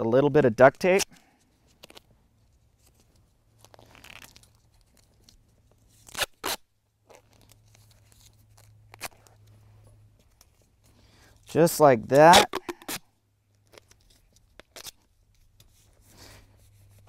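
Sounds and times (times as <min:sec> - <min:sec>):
duct tape pulled and torn: 0:00.7 - 0:09.6, 0:11.5 - 0:16.0.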